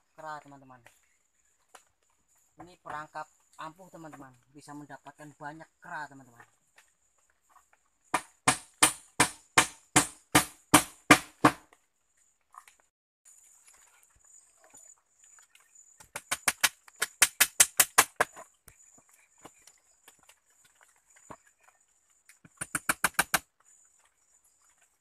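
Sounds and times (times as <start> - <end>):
tool striking wooden poles: 8.1 - 11.8, 16.0 - 18.5, 22.4 - 23.5.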